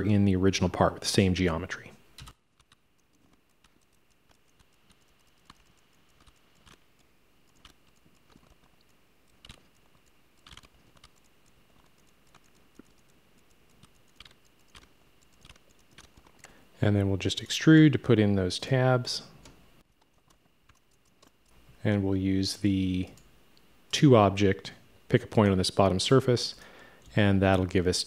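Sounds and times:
computer keyboard and mouse clicks: 2.2s - 16.6s, 19.4s - 21.6s.

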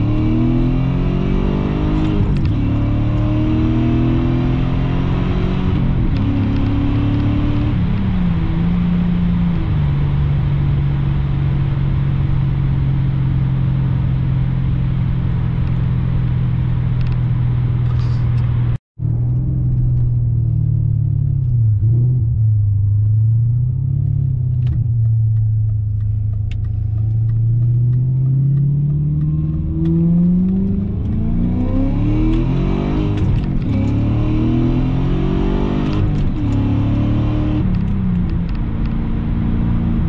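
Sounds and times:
car engine drone: 0.0s - 40.0s
tyre and road noise: 14.2s - 40.0s.

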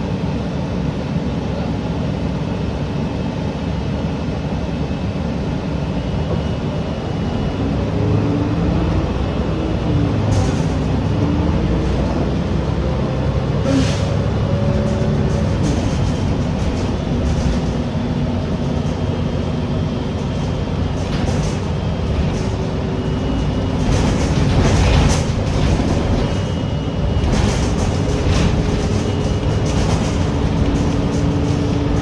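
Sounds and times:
bus engine and road rumble: 0.0s - 32.0s
rattles: 27.2s - 32.0s.

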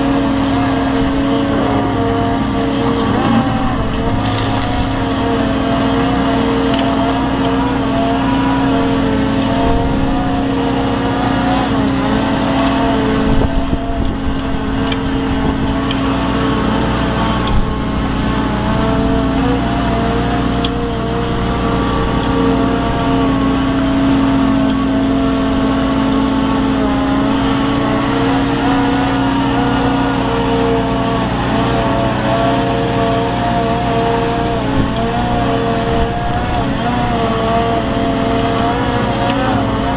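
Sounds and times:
dredge pump hum: 0.0s - 39.9s
excavator engine drone: 0.0s - 39.9s.

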